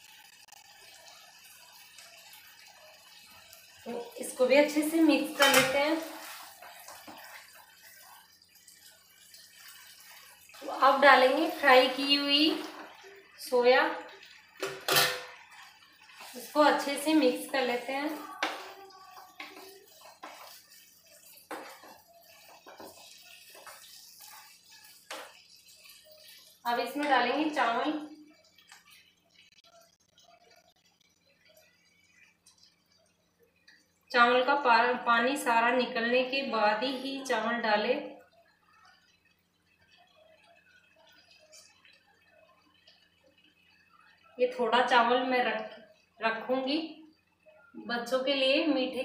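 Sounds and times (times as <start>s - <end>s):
rice pattering into a pan: 0.0s - 33.9s
spatula knocking pan: 5.3s - 7.5s, 18.3s - 25.5s
spatula stirring thick sauce: 5.3s - 13.4s, 15.3s - 33.9s.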